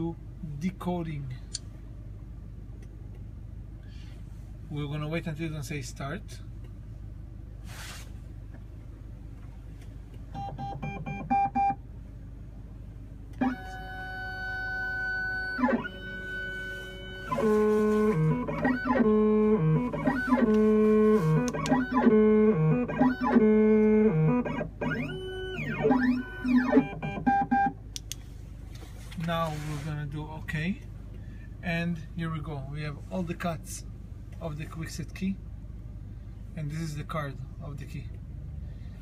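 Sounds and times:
stepper motors whining: 0:13.4 - 0:27.7.

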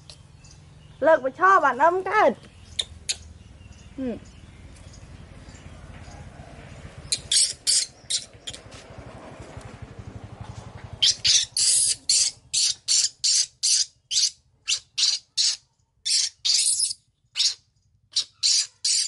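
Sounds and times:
baby monkey squealing: 0:07.1 - 0:08.7, 0:11.0 - 0:19.0.

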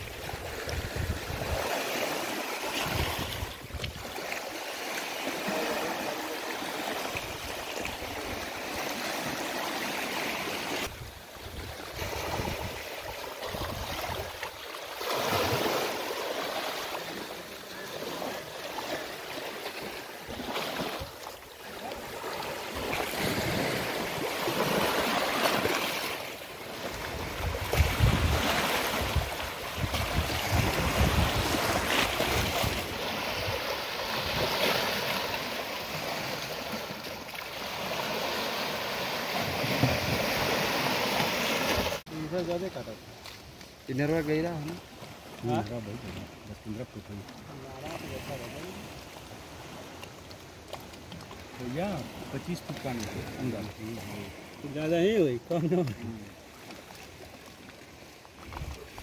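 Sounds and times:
wind buffeting microphone: 0:00.0 - 0:01.7, 0:27.0 - 0:34.4
small waves lapping riverbank: 0:00.0 - 0:59.0.

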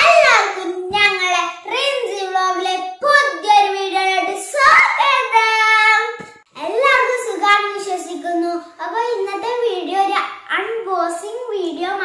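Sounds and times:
girl singing: 0:00.0 - 0:09.9.

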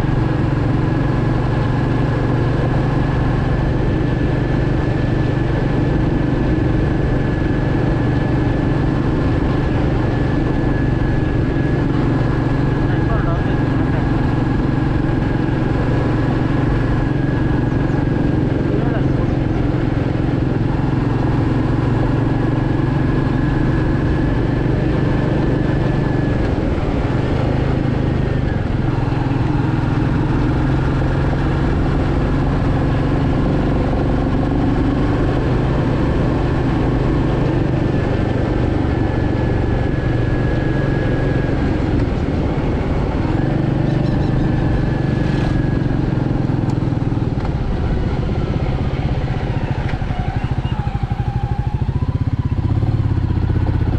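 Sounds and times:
motorcycle engine cruising: 0:00.0 - 0:53.9.

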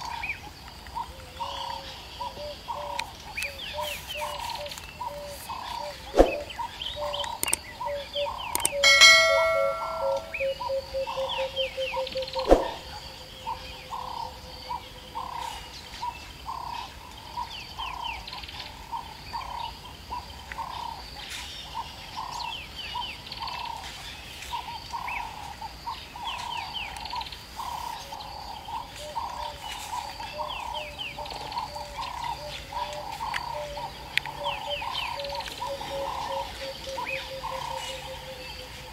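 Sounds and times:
birds chirping: 0:00.0 - 0:38.9
low repeating call: 0:08.8 - 0:10.5
ringing chime-like tone: 0:08.8 - 0:10.7.

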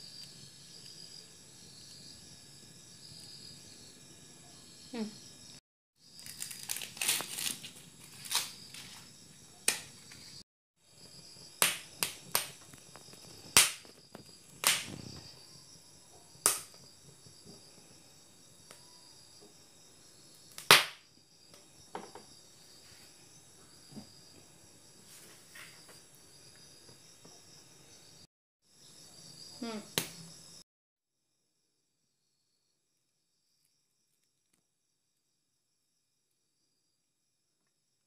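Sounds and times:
corn kernels popping and cracking: 0:06.1 - 0:08.8, 0:11.4 - 0:15.2, 0:16.4 - 0:16.9, 0:20.4 - 0:21.0.

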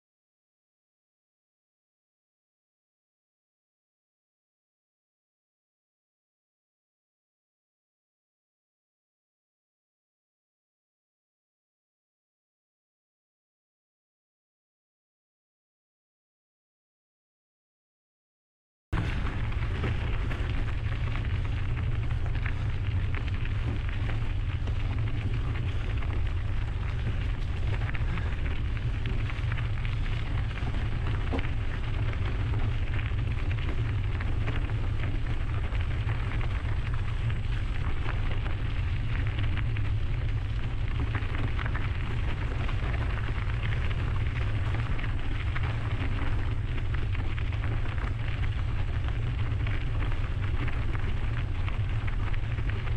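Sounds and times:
bike tyres crackling over trail: 0:19.0 - 0:52.9.

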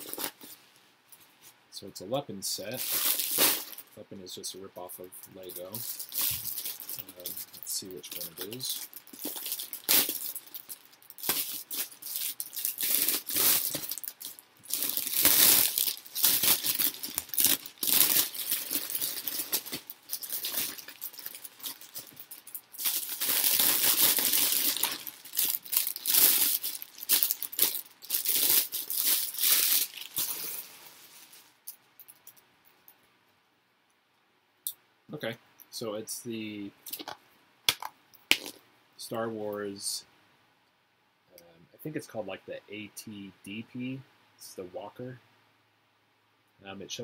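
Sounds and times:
plastic wrapping crinkling and tearing: 0:00.0 - 0:00.6, 0:02.6 - 0:03.9, 0:05.3 - 0:31.6
small plastic bags handled: 0:00.0 - 0:00.6, 0:02.6 - 0:04.0, 0:05.0 - 0:31.7.

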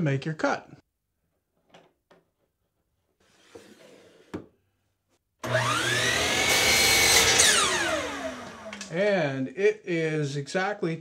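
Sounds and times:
miter saw motor whining: 0:05.4 - 0:08.9.

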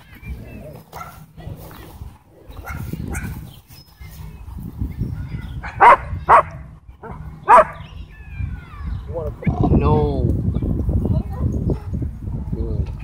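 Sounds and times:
dog barking: 0:01.0 - 0:01.2, 0:02.6 - 0:03.4, 0:05.6 - 0:07.8.

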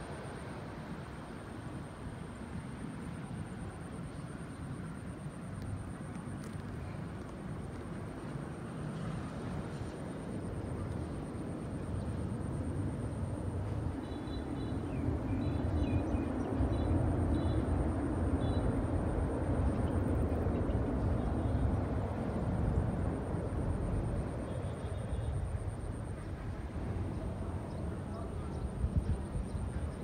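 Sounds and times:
jet engines rumbling: 0:09.6 - 0:30.0.

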